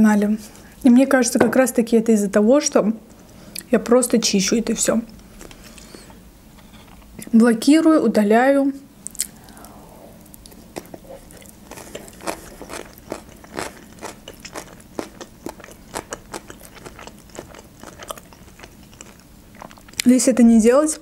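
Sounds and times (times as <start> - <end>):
chewing with soft crunches: 10.4 - 20.1.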